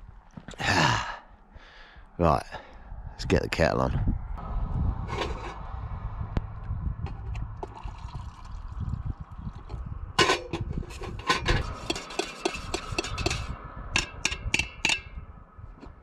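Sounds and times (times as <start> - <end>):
water pouring into kettle: 7.6 - 9.7.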